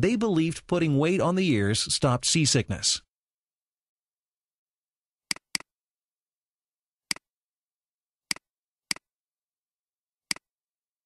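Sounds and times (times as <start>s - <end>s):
computer mouse clicking: 5.3s - 5.7s, 8.3s - 9.1s.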